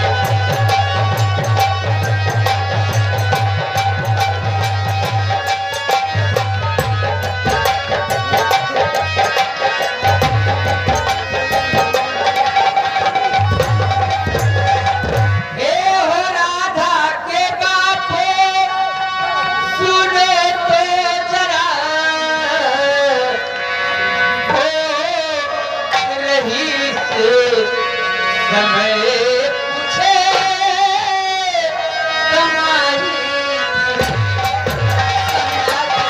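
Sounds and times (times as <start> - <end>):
light drum accompaniment: 0.0 - 16.6, 24.3 - 36.0
person singing into microphone: 0.0 - 36.0.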